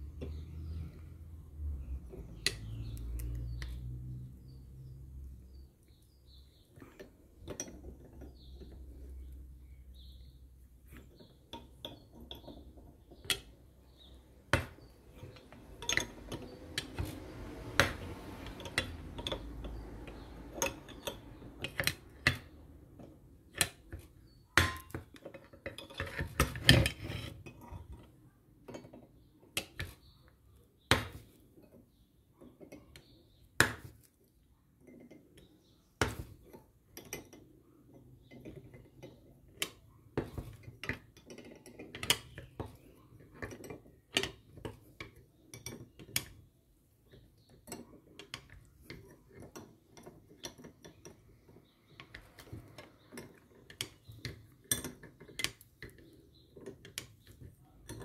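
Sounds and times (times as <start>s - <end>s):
wrench clinking on metal: 14.6s - 17.2s.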